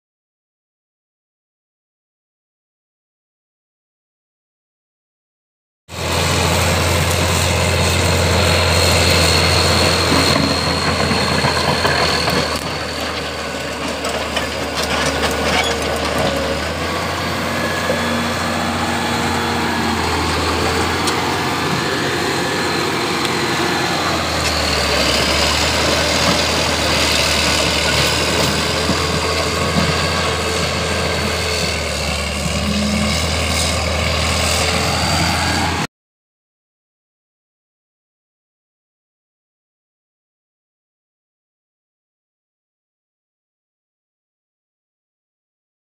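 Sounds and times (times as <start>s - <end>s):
bulldozer diesel engine under load: 5.9s - 35.9s.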